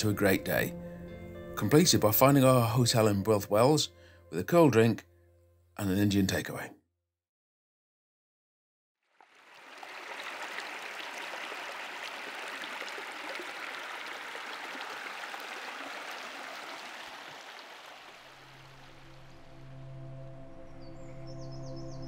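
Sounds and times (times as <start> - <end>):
river rushing over stones: 9.6 - 19.2.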